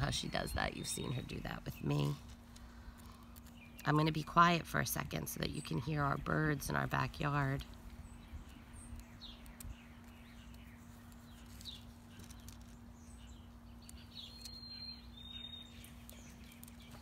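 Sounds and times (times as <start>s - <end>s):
songbirds chirping: 0.0s - 17.0s
long whistled bird notes: 13.2s - 17.0s.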